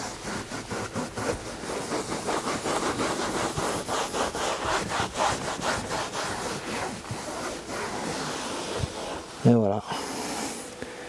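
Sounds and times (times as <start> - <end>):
cloth rubbing on car seat: 0.0 - 10.8.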